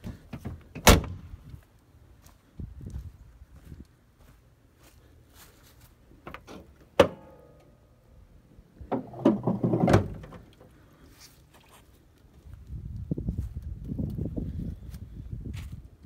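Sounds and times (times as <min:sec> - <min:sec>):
metallic clunks and creaks of hood: 0:06.2 - 0:07.7.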